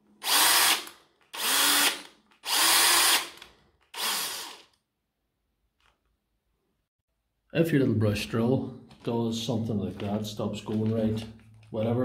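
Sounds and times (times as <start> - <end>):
cordless drill motor bursts: 0.2 - 4.8.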